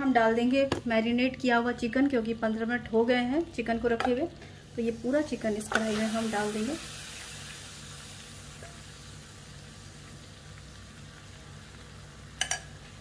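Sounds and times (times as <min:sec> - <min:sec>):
chicken sizzling in a pan: 0:04.7 - 0:13.0.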